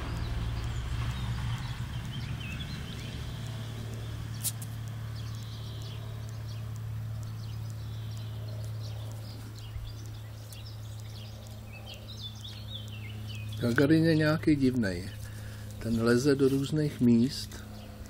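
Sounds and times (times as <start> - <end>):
small birds chirping: 0.0 - 18.0
steady low hum: 0.0 - 18.0
sharp click: 3.0 - 13.5.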